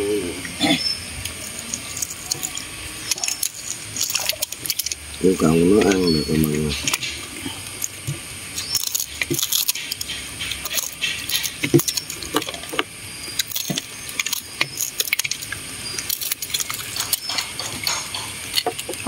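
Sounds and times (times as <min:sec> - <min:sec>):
dishes and utensils clinking: 0:16.1 - 0:19.0.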